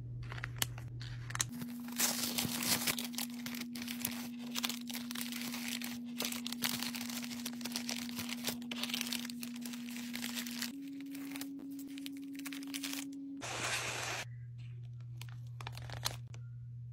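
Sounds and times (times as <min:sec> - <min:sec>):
plastic mailer crinkling: 0:00.2 - 0:16.5
steady low hum: 0:07.9 - 0:16.9.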